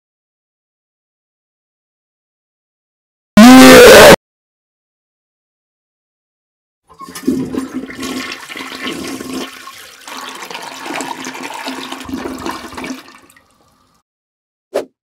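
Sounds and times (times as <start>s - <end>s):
toilet flushing: 6.9s - 14.0s.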